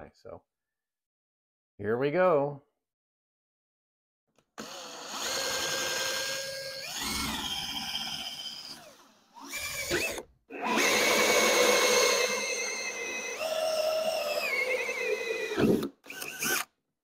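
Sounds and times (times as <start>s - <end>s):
drill motor whining: 4.6s - 16.7s
hole saw cutting plastic panel: 4.6s - 16.7s.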